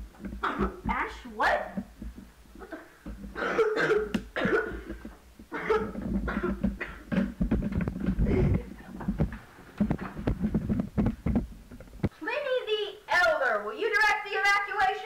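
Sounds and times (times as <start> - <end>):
boy coughing hard: 0.4 - 0.8, 2.6 - 7.3.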